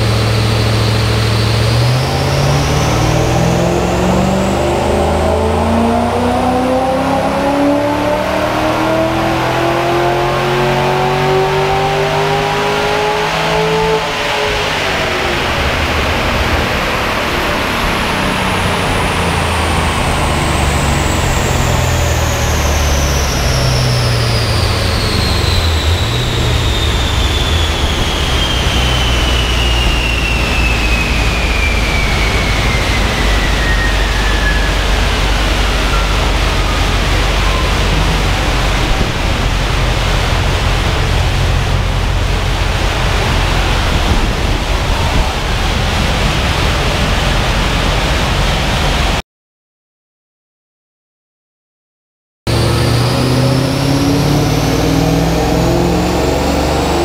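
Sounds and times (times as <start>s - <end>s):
cooling fans rushing air: 0.0s - 49.2s, 52.5s - 57.0s
engine running low: 0.0s - 49.2s, 52.5s - 57.0s
rollers whining: 14.2s - 48.8s.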